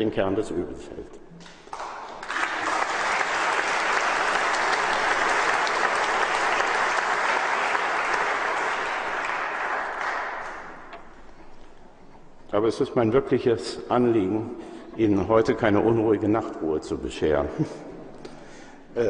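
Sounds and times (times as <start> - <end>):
audience applauding: 1.4 - 11.7.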